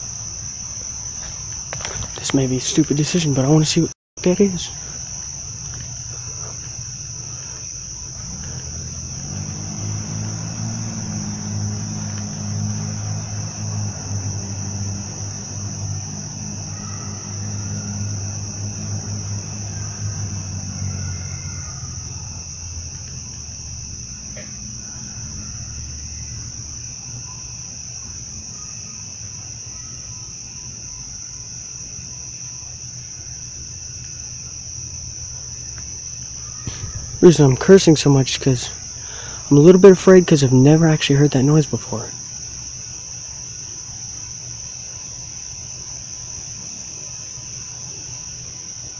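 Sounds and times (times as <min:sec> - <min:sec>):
night insects chorus: 0:00.0 - 0:48.9
low droning hum: 0:03.8 - 0:27.0.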